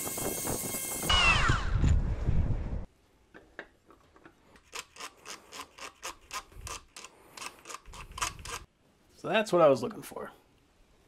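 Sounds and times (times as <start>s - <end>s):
plastic parts clicking and rubbing: 3.4s - 8.7s.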